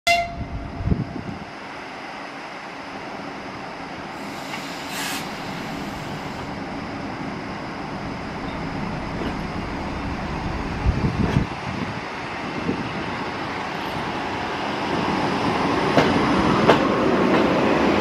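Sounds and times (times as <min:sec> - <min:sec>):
electric train pulling away: 0:04.0 - 0:18.0
brief hiss: 0:04.2 - 0:06.5.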